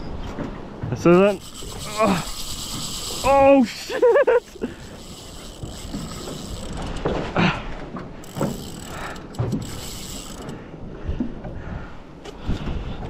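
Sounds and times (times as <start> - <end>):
fishing reel clicking and whirring: 1.1 - 7.3, 8.2 - 10.6.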